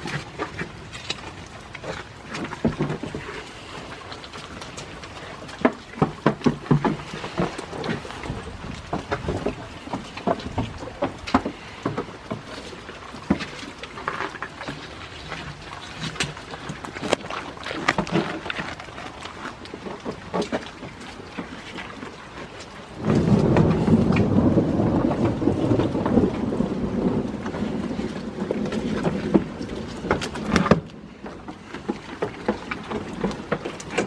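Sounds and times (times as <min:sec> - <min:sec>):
rain falling: 0:00.0 - 0:34.0
sharp drips and clicks: 0:00.0 - 0:34.0
wind on microphone: 0:06.7 - 0:13.7, 0:22.8 - 0:31.3.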